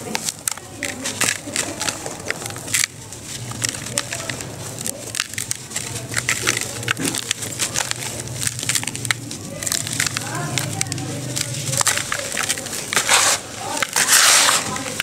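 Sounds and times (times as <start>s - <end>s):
dry lumps crumbling in hands: 0.0s - 15.0s
grains pattering into plastic tub: 0.0s - 15.0s.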